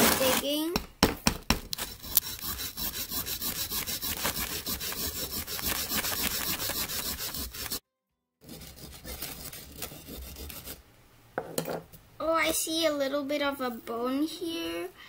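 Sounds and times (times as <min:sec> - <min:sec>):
plastic tool scraping plaster: 0:01.7 - 0:07.8.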